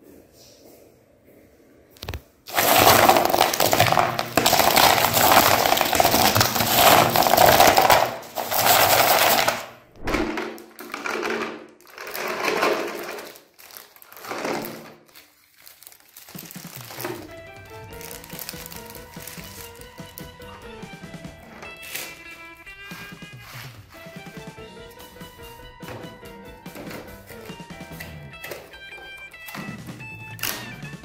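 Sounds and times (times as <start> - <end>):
chocolate bars rattling in plastic tray: 2.5 - 20.3.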